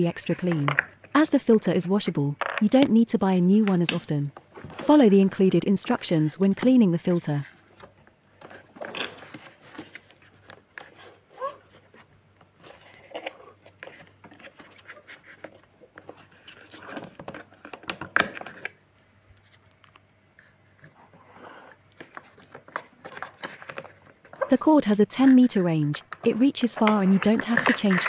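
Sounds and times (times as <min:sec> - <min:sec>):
plastic parts clicking and tapping: 0:26.0 - 0:28.0.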